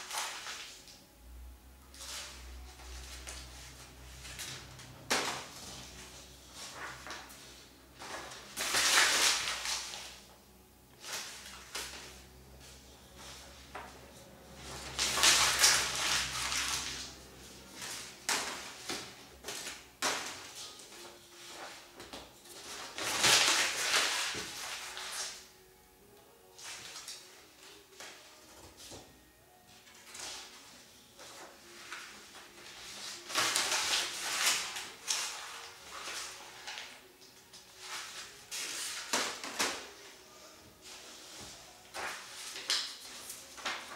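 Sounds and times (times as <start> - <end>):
paper crumpling: 2.0 - 10.2, 14.8 - 21.8, 22.5 - 25.4, 31.2 - 37.1.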